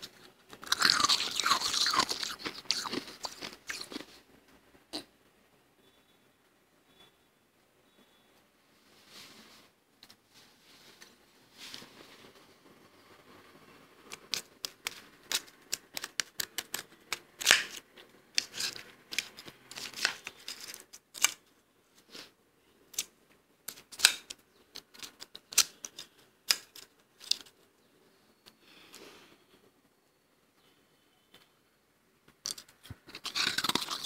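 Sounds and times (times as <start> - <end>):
frost crunching: 0.5 - 4.2, 32.5 - 34.0
metal spoon scooping frost: 18.4 - 21.4, 32.5 - 34.0.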